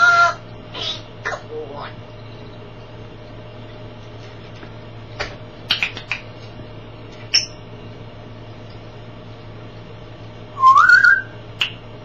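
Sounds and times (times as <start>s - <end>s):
low hum: 0.0s - 12.0s
parrot clicking: 5.7s - 6.3s
parrot squeak: 7.3s - 7.6s.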